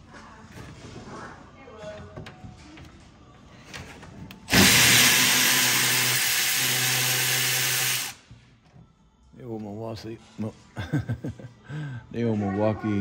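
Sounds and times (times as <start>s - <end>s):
cordless electric ratchet running: 4.5s - 8.2s.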